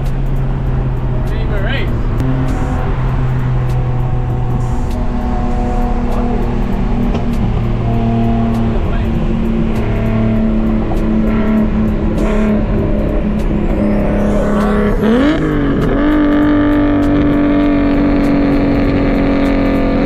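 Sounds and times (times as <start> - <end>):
car engine drone from cabin: 0.0 - 20.0.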